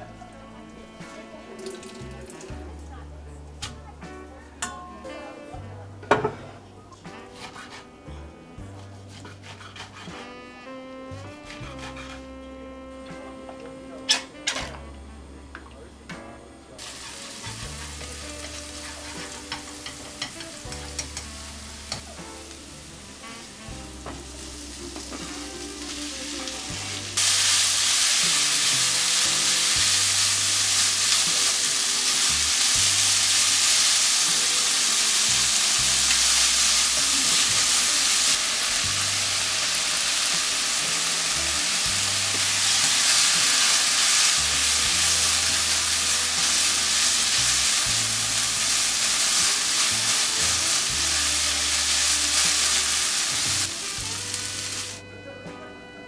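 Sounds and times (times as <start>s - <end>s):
food sizzling in hot oil: 11.4s - 12.2s, 16.8s - 55.0s.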